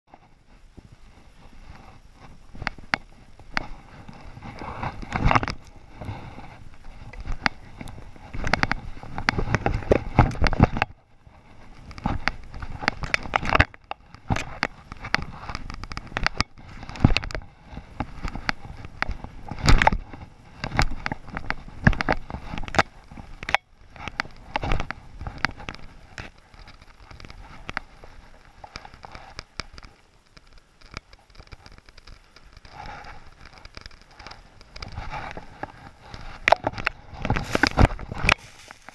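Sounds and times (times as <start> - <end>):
sharp clicks and knocks: 7.0 - 11.0, 11.7 - 38.9
skis swooshing through powder snow: 37.4 - 38.9.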